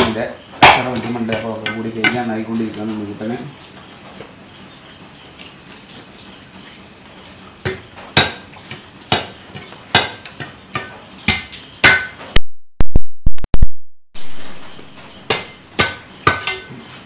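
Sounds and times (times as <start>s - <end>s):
cleaver chopping fish on wood: 0.0s - 2.2s, 7.6s - 12.2s, 15.3s - 16.5s.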